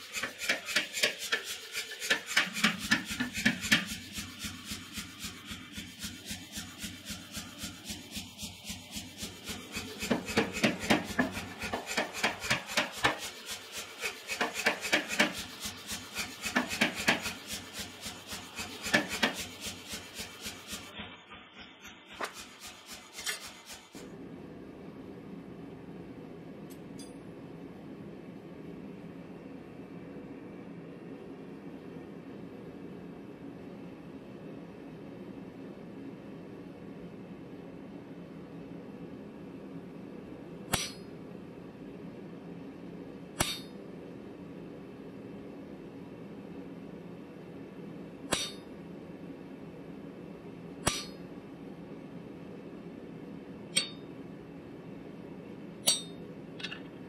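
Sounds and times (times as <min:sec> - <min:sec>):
steady low hum: 0:00.0 - 0:57.0
power hammer striking steel: 0:08.7 - 0:13.3, 0:14.0 - 0:23.9, 0:40.7 - 0:41.1, 0:43.4 - 0:43.8, 0:48.3 - 0:48.7, 0:50.9 - 0:51.2, 0:53.8 - 0:54.1, 0:55.9 - 0:56.2.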